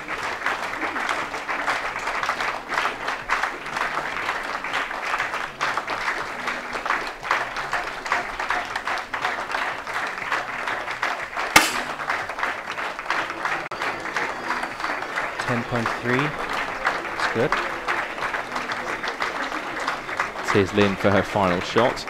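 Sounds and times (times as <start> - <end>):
crowd applauding: 0.0 - 22.0
sharp crack: 11.6 - 12.2.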